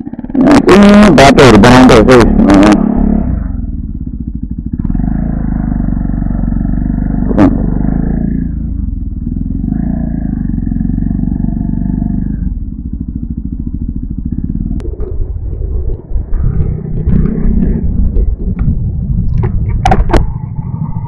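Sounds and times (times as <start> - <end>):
motorcycle engine running: 0.0 - 21.0
clicks and knocks: 15.9 - 20.3.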